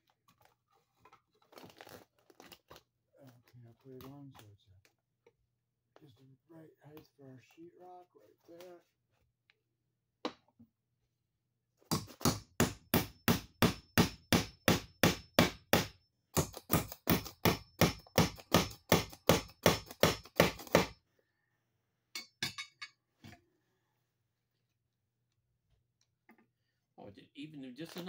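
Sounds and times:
hammer driving nails: 0:11.9 - 0:21.0.

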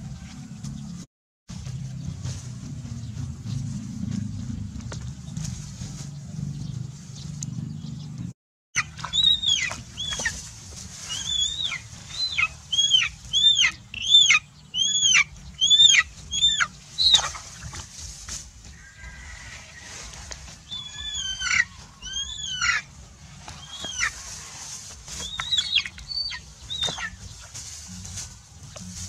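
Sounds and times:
low steady rumble: 0:00.0 - 0:08.3, 0:26.0 - 0:29.0
chicken squawking: 0:08.8 - 0:17.6, 0:20.6 - 0:22.9, 0:23.5 - 0:27.3.

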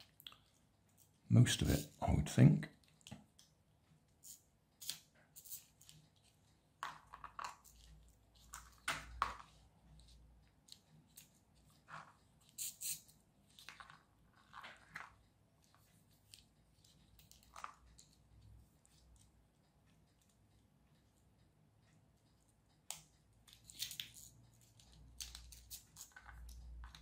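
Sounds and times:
plastic pieces clicking apart: 0:22.9 - 0:27.0.

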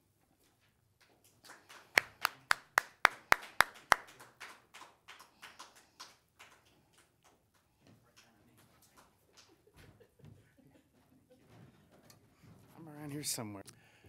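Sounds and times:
hand clapping: 0:01.0 - 0:10.0.

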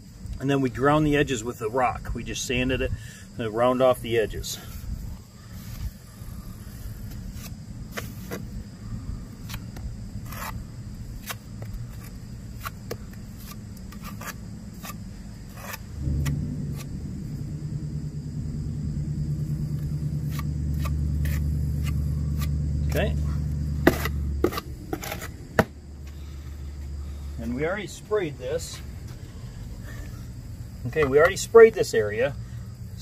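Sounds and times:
trowel scraping mortar on stone: 0:10.2 - 0:10.6, 0:11.2 - 0:15.9, 0:20.2 - 0:22.5, 0:23.8 - 0:25.7
engine running: 0:15.8 - 0:31.4.

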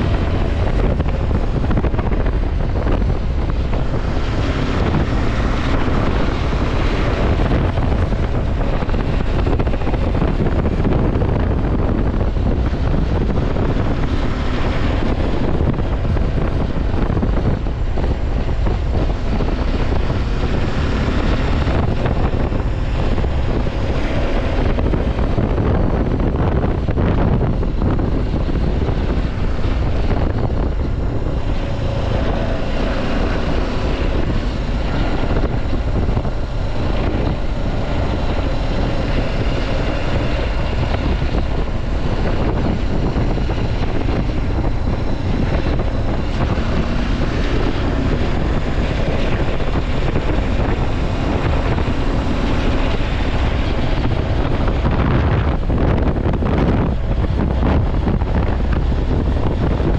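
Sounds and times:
wind noise on microphone: 0:00.0 - 0:59.9.

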